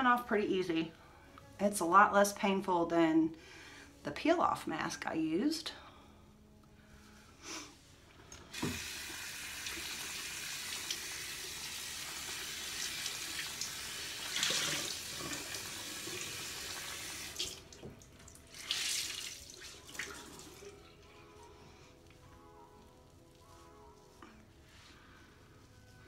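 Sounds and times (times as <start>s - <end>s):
tap water running into a sink: 8.3s - 20.7s.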